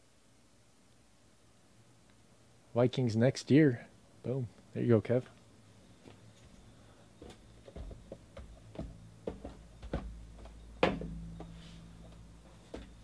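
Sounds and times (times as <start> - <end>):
cardboard boxes knocking and tapping: 10.8 - 11.6.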